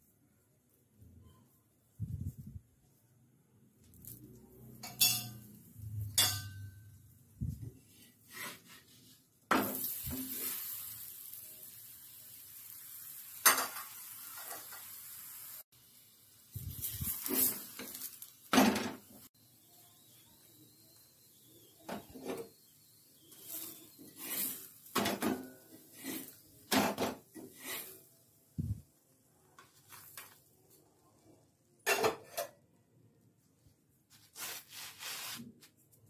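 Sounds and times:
metal spoon scraping on griddle: 4.8s - 5.5s, 16.7s - 18.3s, 23.2s - 28.1s
spatula clinking on griddle: 4.8s - 6.7s, 13.4s - 15.0s
oil sizzling: 9.5s - 29.1s.

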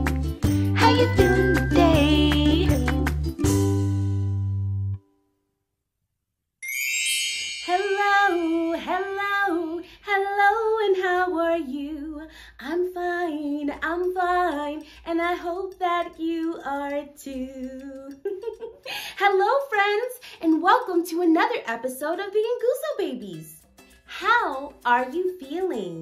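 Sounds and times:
woman singing: 0.6s - 3.1s, 7.7s - 22.4s
bright chime: 6.6s - 9.1s.

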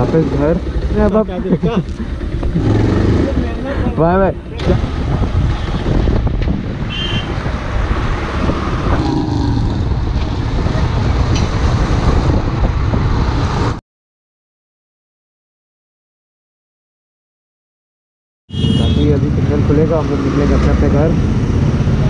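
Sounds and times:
road traffic rumble: 0.0s - 13.8s, 18.5s - 22.0s.

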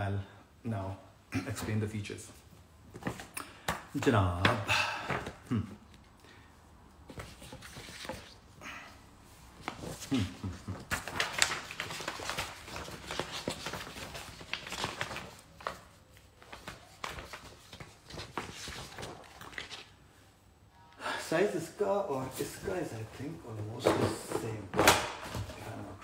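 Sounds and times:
smartphones and boxes handled: 7.0s - 8.5s, 22.2s - 26.0s.

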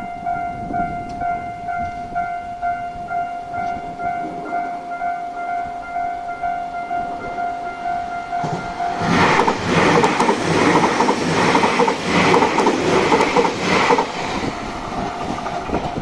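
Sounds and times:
level-crossing warning bell: 0.0s - 14.4s
train wheels clattering: 8.4s - 16.0s.

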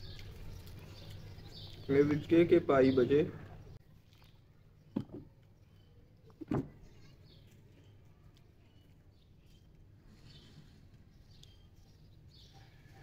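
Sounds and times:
faint bird chirps: 3.5s - 13.0s.

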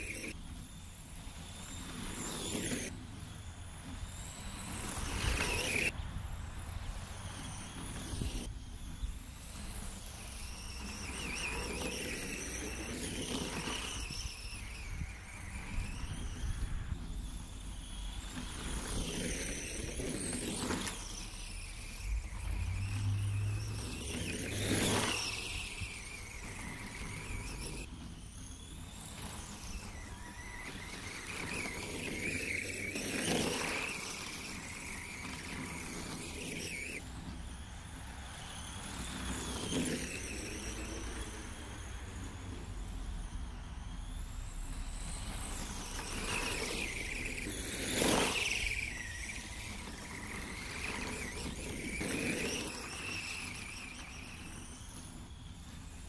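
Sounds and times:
electric motor whining: 0.0s - 56.0s.

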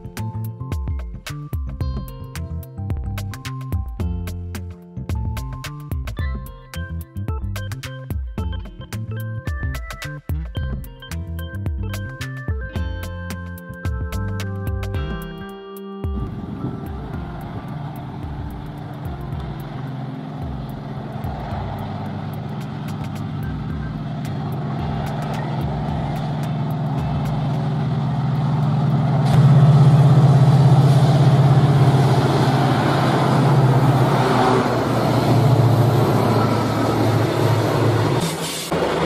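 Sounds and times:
train locomotive engine drone: 16.2s - 39.0s.

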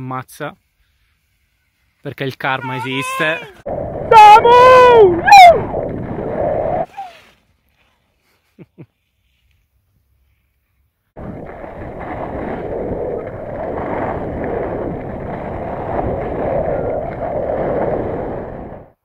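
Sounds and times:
skis sliding over snow: 0.0s - 3.6s, 6.8s - 18.8s
wind on microphone: 3.2s - 7.1s, 11.2s - 19.0s.

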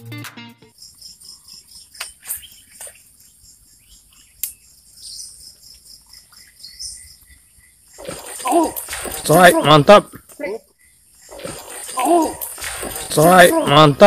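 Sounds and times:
insects droning: 0.6s - 14.0s
bird chirps: 0.7s - 9.6s.

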